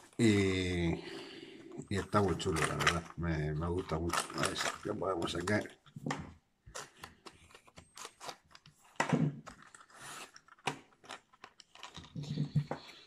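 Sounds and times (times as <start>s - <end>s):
plastic box crackling and clicking: 3.8s - 12.7s.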